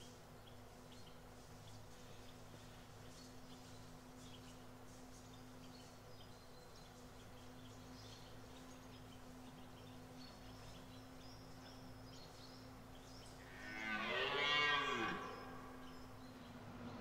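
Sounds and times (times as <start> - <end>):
deer stag roaring: 13.5 - 15.8.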